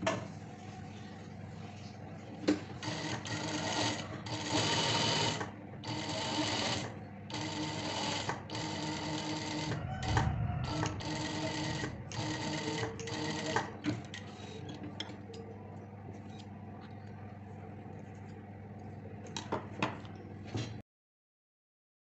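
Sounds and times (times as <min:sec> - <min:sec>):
sewing machine stitching: 0:02.8 - 0:14.0.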